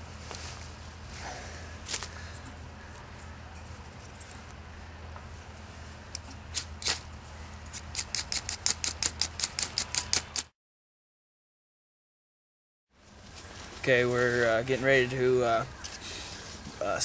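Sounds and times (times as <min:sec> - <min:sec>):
striker scraping flint bar: 0:07.7 - 0:10.5.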